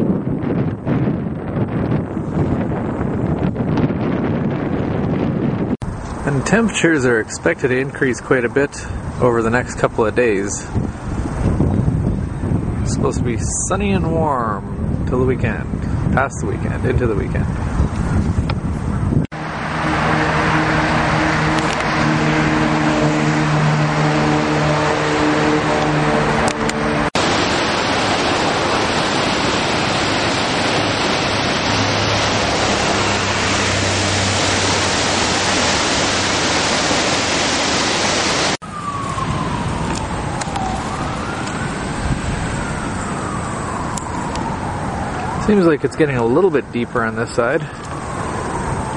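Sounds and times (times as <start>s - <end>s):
road traffic: 0.0s - 48.9s
low engine hum: 17.3s - 45.4s
emergency vehicle siren wailing: 19.4s - 48.9s.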